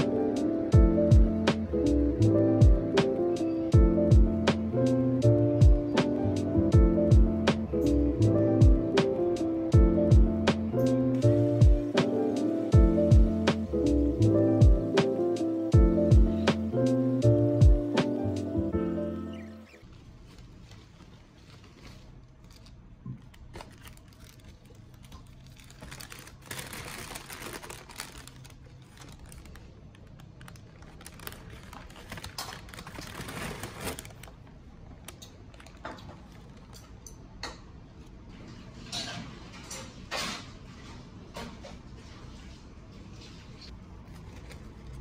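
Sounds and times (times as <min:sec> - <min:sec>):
paper bag and wrappers rustling: 0:19.8 - 0:36.9, 0:43.1 - 0:45.0.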